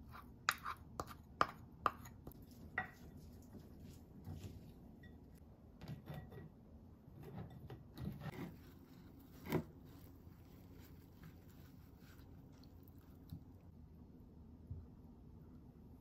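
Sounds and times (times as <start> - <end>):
paper towel rustling: 8.5 - 13.3.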